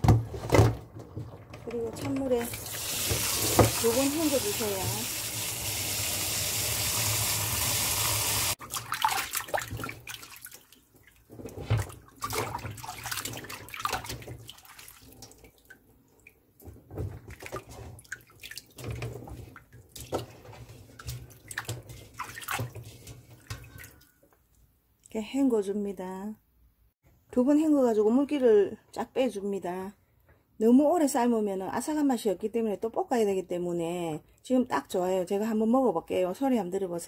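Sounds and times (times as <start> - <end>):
water running: 0.9 - 24.2
hands splashing in a bowl of water: 8.6 - 16.4, 17.2 - 24.1.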